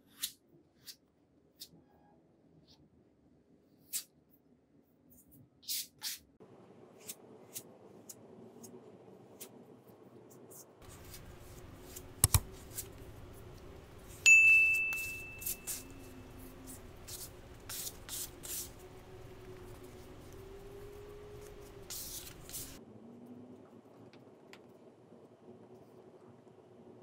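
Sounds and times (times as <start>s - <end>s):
sharp ringing clink: 14.3s - 16.2s.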